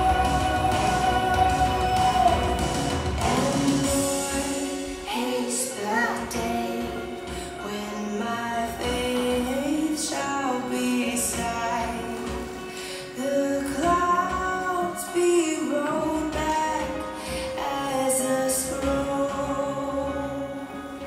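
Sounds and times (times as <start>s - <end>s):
instrumental backing: 0.0s - 21.0s
woman singing: 0.0s - 21.0s.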